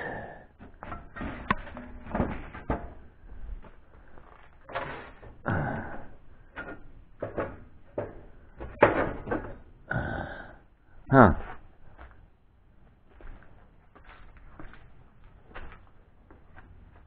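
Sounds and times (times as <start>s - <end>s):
objects knocking and scraping on wood: 0.6s - 5.4s, 6.0s - 9.7s.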